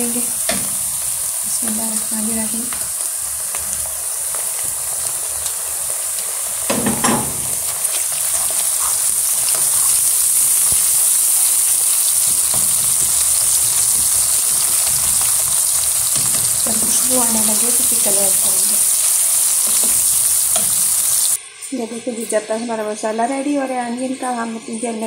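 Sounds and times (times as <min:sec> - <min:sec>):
onion sizzling in hot oil: 0:00.0 - 0:21.4
wooden spatula stirring: 0:07.5 - 0:10.8.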